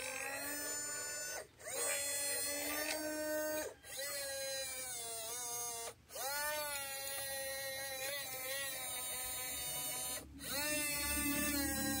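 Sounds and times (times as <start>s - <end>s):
small electric motor whining: 0.0s - 12.0s.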